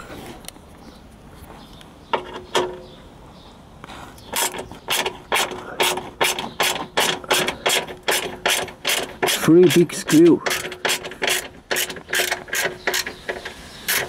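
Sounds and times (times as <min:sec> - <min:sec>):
ratchet wrench clicking: 0:04.4 - 0:14.0.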